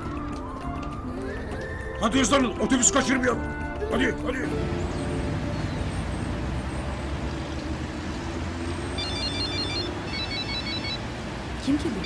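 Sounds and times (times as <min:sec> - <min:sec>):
phone ringtone trilling beeps: 0:09.0 - 0:11.1.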